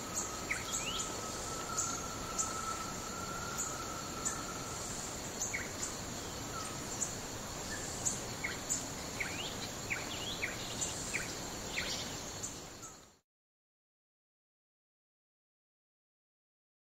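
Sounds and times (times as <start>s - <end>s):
high insect-like drone: 0.0s - 9.8s
steady hiss: 0.0s - 13.2s.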